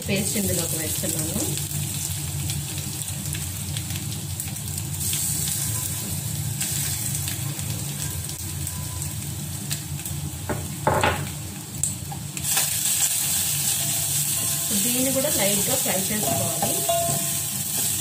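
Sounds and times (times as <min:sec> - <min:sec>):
spices sizzling in hot oil: 0:00.0 - 0:18.0
steel spoon stirring in pot: 0:16.2 - 0:18.0.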